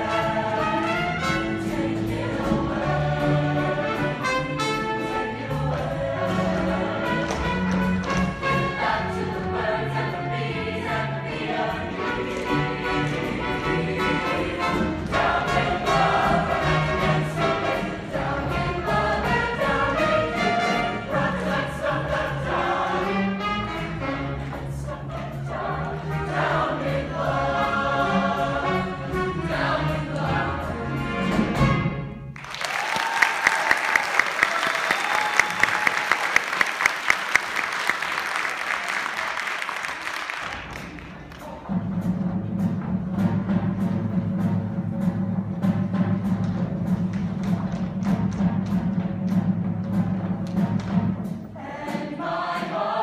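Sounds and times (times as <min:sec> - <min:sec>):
choir singing with band: 0:00.0 - 0:32.0, 0:50.6 - 0:53.0
audience applause and cheering: 0:32.4 - 0:41.6.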